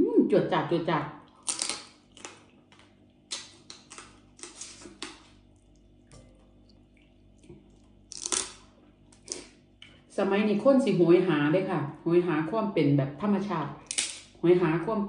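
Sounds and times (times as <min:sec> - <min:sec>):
seafood shells cracking: 0:01.3 - 0:06.0, 0:07.6 - 0:09.6, 0:13.8 - 0:14.3.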